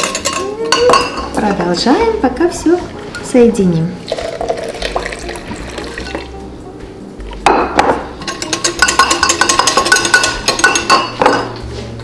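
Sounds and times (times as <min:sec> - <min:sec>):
whisk clinking against glass jug: 0:00.0 - 0:01.2, 0:08.2 - 0:11.4.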